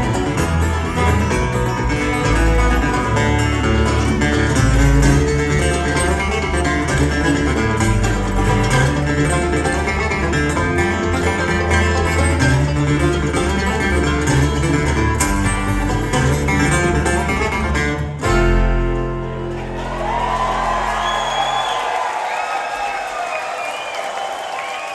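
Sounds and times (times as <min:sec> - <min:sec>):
bluegrass band playing: 0:00.0 - 0:21.0
crowd whooping: 0:19.4 - 0:24.9.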